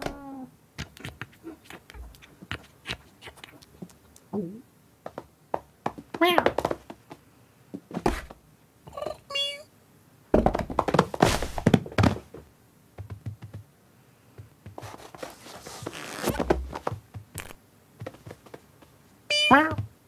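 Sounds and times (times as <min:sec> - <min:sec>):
thumps and scuffles: 0:05.1 - 0:08.4, 0:10.3 - 0:13.4, 0:14.4 - 0:19.0
cartoon cat call: 0:09.0 - 0:09.7, 0:19.3 - 0:19.8.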